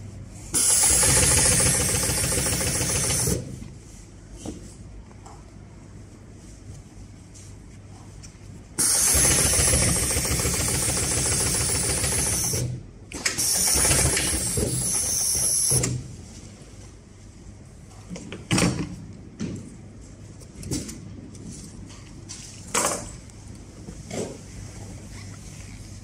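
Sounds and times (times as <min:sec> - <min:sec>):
sewing machine stitching: 0:00.6 - 0:03.5, 0:08.8 - 0:12.7, 0:13.3 - 0:15.8.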